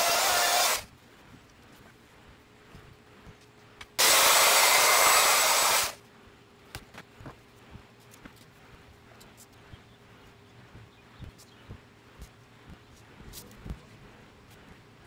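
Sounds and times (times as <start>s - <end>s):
electric router whining: 0.0s - 0.9s, 4.0s - 6.0s.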